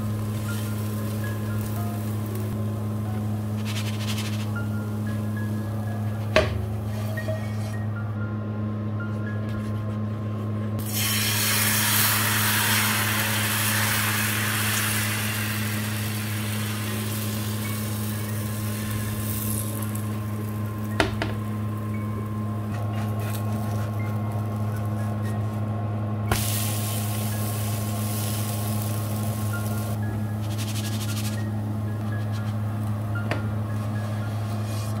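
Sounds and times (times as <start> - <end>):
batter sizzling in frying pan: 0.0 - 5.6, 10.8 - 21.9, 26.3 - 30.0
low electrical hum: 0.0 - 35.0.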